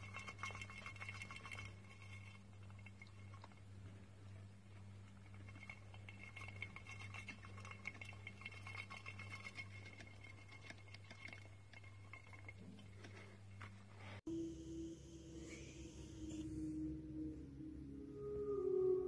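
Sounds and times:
hamster wheel clicking and rattling: 0.0 - 13.7
low steady hum: 0.0 - 19.0
thin steady whine: 0.0 - 19.0.

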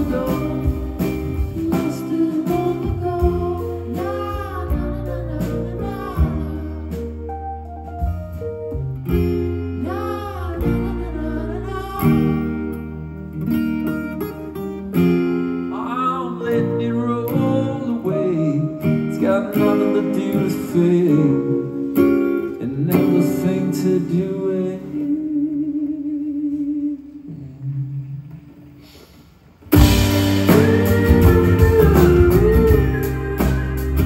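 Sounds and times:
person singing: 0.0 - 7.3, 15.7 - 28.0, 29.8 - 34.0
electric guitar: 0.0 - 25.0, 29.6 - 34.0.

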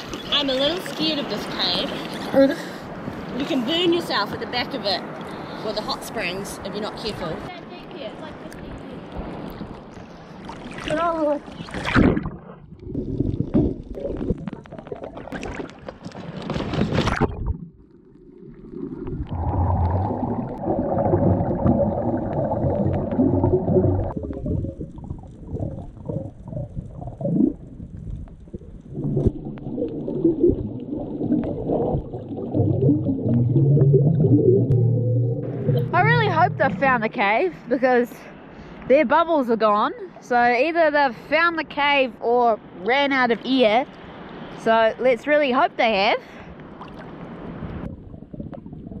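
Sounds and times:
sea water splashing: 0.0 - 37.7, 46.4 - 49.0
underwater regulator bubbles gurgling: 17.0 - 37.1, 47.8 - 49.0.

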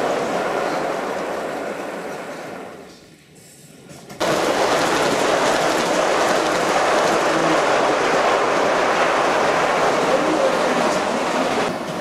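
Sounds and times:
model train wheels rumbling: 4.0 - 12.0.

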